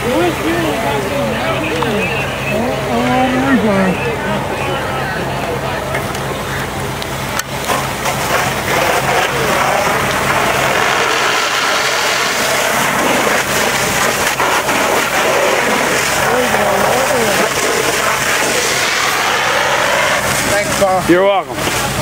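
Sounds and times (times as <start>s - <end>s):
hose water spraying: 5.8s - 22.0s.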